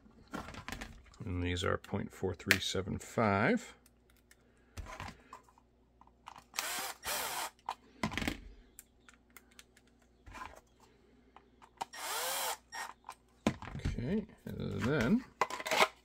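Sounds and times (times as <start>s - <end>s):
impact driver motor spinning: 6.5s - 7.6s, 11.8s - 13.0s
screws clicking: 11.8s - 13.0s.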